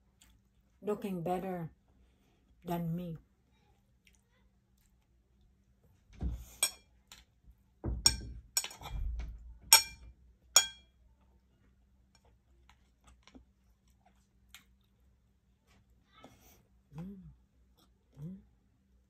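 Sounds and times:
utensils clinking on dishes: 0:08.0 - 0:09.0, 0:09.7 - 0:10.8.

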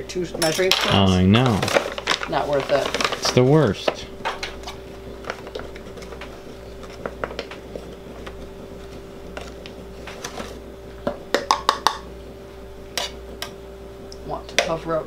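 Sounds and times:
steady low hum: 0:00.0 - 0:15.0
flour scraping and rustling: 0:01.4 - 0:03.6, 0:04.6 - 0:10.6.

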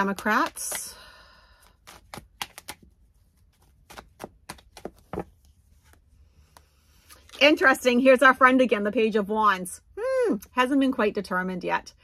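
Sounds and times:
cards clicking and snapping: 0:01.7 - 0:02.9, 0:03.6 - 0:05.2.

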